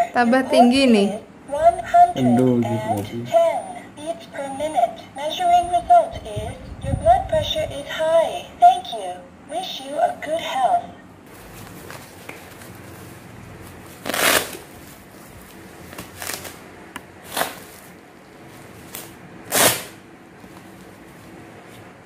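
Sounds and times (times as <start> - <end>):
hook-and-loop strap ripping: 14.0 - 14.6, 19.5 - 20.0.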